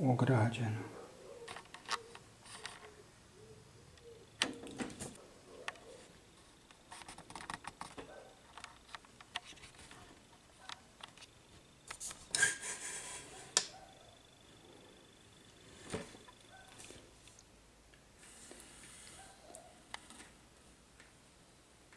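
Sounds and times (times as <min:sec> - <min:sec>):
scraping rustle: 0:01.4 - 0:03.0.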